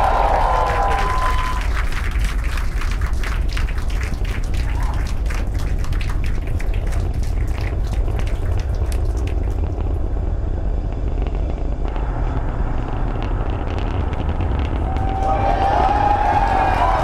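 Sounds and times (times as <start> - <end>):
crowd whistles and cheering: 0.0 - 3.1, 4.5 - 5.4, 14.4 - 17.0
rocket engine rumble: 0.0 - 17.0.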